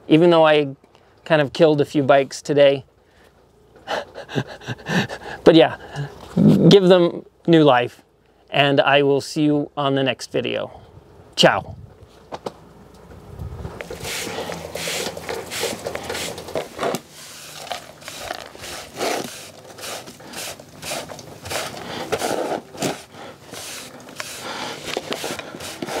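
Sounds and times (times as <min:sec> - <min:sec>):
brushing into dustpan: 0:13.8 - 0:26.0
push broom scraping on concrete: 0:13.8 - 0:26.0.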